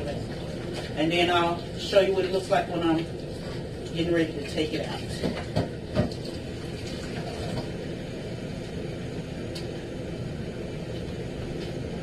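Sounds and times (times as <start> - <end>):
kitchen faucet running: 0.0 - 7.7.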